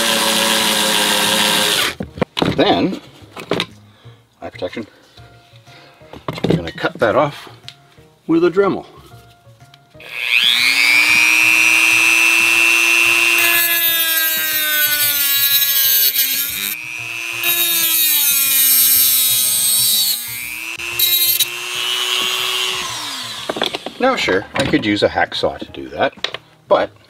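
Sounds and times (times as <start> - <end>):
rotary tool grinding through screw: 0.0 - 2.0, 10.1 - 23.9
rotary tool cutting wheel whine: 10.0 - 23.9.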